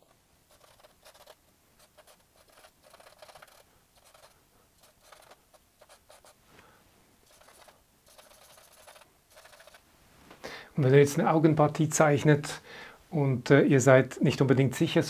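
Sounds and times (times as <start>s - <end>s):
charcoal scratching on paper: 0.0s - 6.4s, 7.2s - 9.8s.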